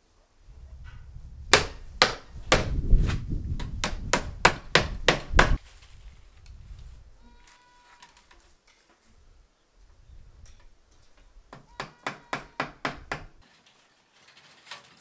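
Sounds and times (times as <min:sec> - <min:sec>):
sharp knocks on wooden frame: 0:01.5 - 0:02.8, 0:03.6 - 0:05.6, 0:11.5 - 0:13.4.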